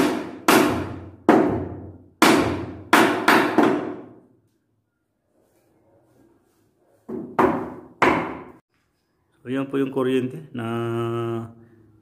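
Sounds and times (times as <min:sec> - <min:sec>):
hammer striking wood: 0:00.0 - 0:04.2, 0:07.1 - 0:08.6.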